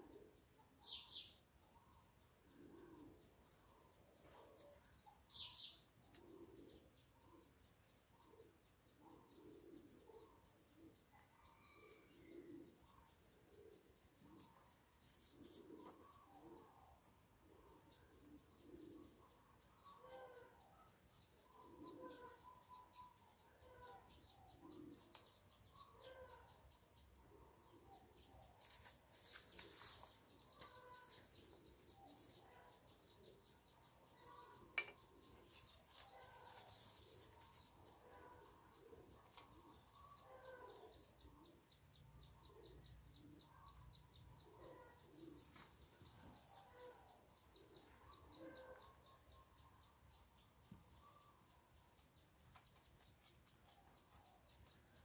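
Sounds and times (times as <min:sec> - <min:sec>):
dove cooing: 0:02.4 - 0:03.3, 0:21.5 - 0:22.6, 0:46.5 - 0:49.0
hands rustling in potting soil: 0:28.3 - 0:33.0, 0:35.2 - 0:40.9, 0:45.2 - 0:48.0.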